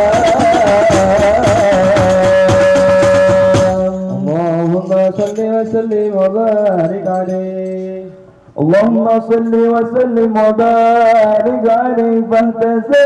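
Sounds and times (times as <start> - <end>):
frame drums: 0.0 - 7.4
man chanting: 0.0 - 13.0
men singing devotional song: 0.0 - 13.0.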